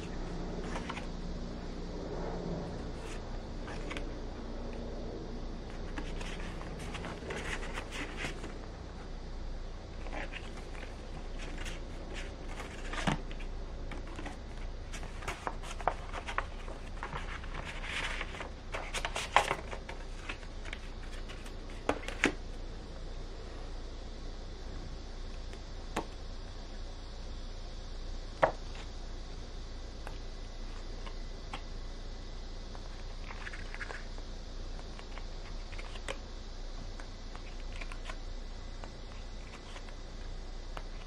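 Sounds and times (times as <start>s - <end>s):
cardboard cards sliding and scraping: 0.6s - 1.1s, 2.7s - 4.1s, 5.7s - 8.7s, 10.0s - 22.4s.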